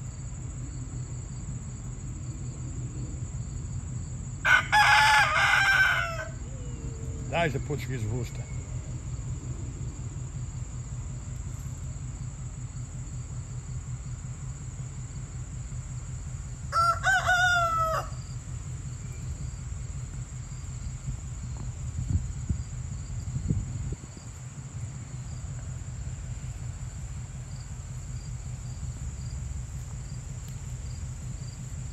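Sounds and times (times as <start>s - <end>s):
rooster crowing: 4.4s - 7.5s, 16.7s - 18.4s.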